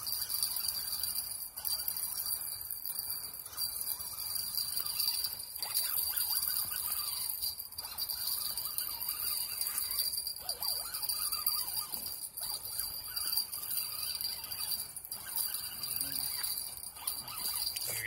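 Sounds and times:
faint wavering tones: 0.0 - 18.0.

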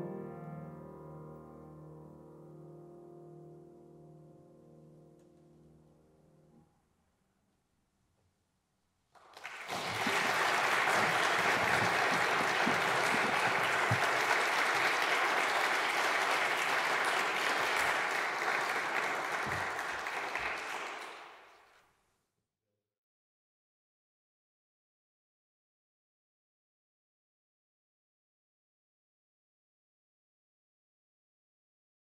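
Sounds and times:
audience applauding: 9.2 - 21.7.

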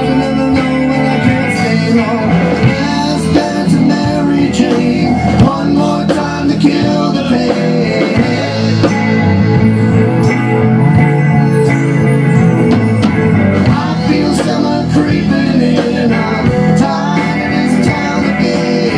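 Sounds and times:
drum kit: 0.0 - 18.9
electric bass: 0.0 - 18.9
electric guitar: 0.0 - 18.9.

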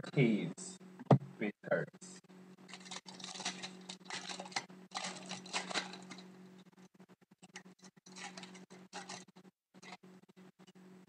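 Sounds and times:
steady low hum: 0.0 - 11.0
foil wrapper crinkling and tearing: 2.7 - 6.4, 7.4 - 10.0.

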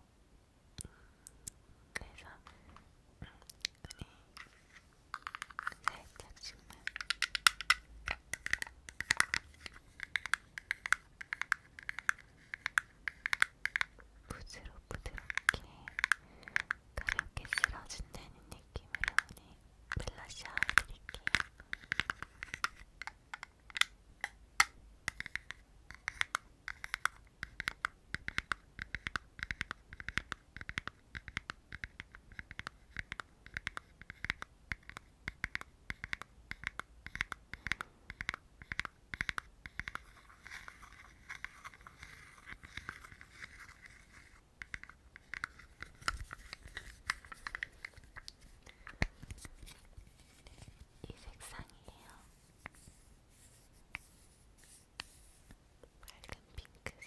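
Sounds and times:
fingertips scratching a soft pad: 36.0 - 48.6, 49.3 - 55.6.

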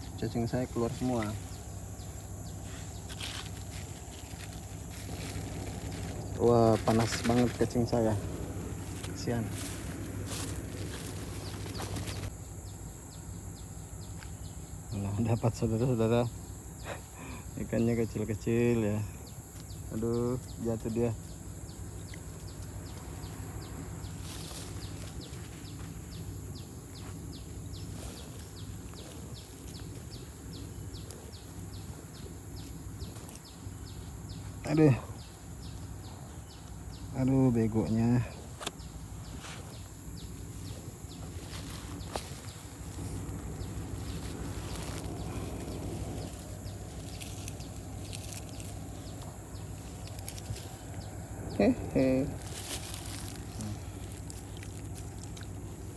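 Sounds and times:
high-pitched insect drone: 0.0 - 55.9
rustle: 0.0 - 55.9
steady background noise: 0.0 - 55.9
mesh bag rustling: 0.9 - 12.3, 39.3 - 51.3, 52.3 - 55.9.

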